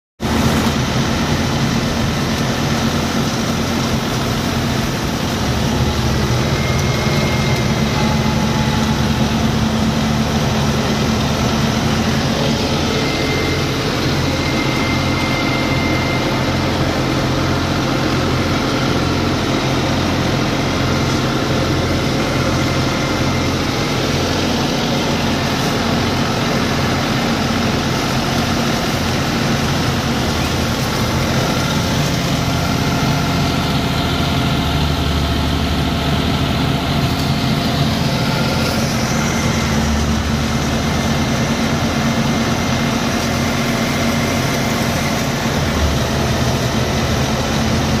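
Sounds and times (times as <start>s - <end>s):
thresher running: 0.2s - 48.0s
tractor engine: 0.2s - 48.0s.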